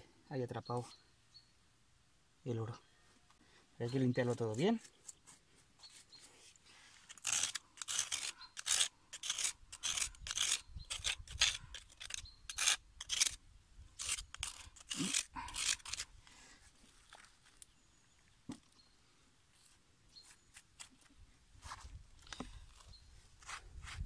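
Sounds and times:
metal spoon scraping gravel: 0:07.0 - 0:13.4, 0:14.0 - 0:16.1.

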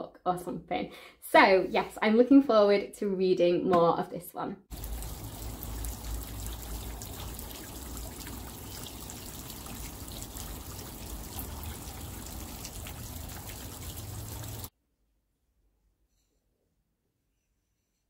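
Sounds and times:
hiss like trickling water: 0:04.7 - 0:14.7.

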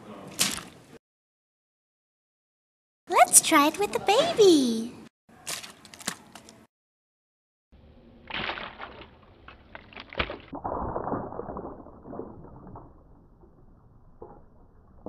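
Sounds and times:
water splashing in a tank: 0:00.2 - 0:00.9, 0:08.2 - 0:15.0.

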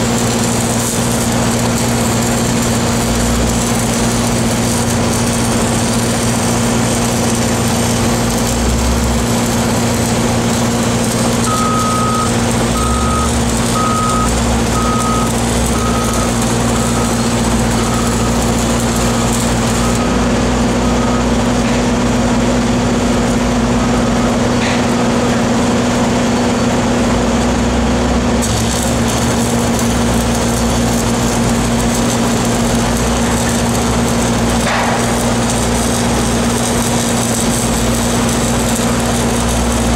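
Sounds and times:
welding arc crackling: 0:00.0 - 0:39.9
reversing alarm beeping: 0:11.4 - 0:20.2, 0:20.8 - 0:21.5, 0:23.1 - 0:25.2.

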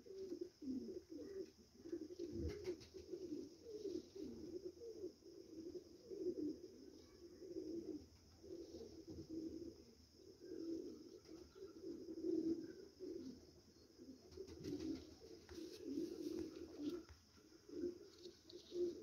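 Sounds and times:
pigeons cooing: 0:00.0 - 0:19.0.

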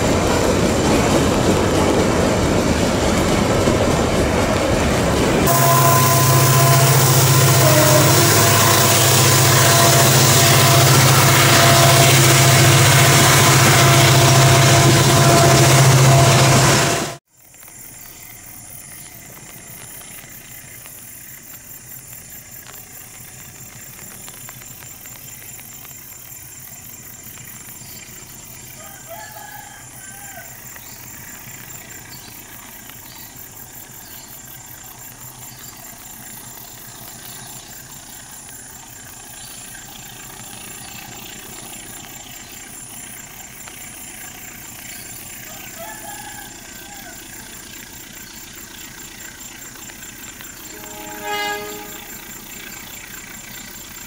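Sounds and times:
distant locomotive rumble: 0:00.0 - 0:17.2, 0:18.8 - 0:54.0
high pulsing buzz: 0:05.5 - 0:17.2, 0:50.7 - 0:52.4.

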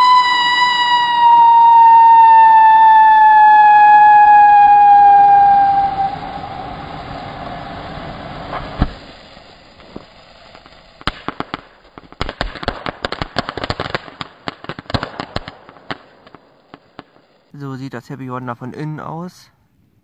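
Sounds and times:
firework whistle: 0:00.0 - 0:11.5
rapid firework crackles: 0:05.9 - 0:17.6
firework pop: 0:08.5 - 0:13.0.

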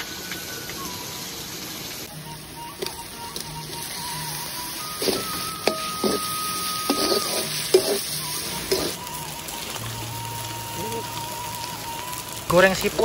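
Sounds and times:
shrimp sizzling in a wok: 0:00.0 - 0:13.0
background music: 0:02.0 - 0:13.0
metal spatula scraping a pan: 0:04.9 - 0:09.0.

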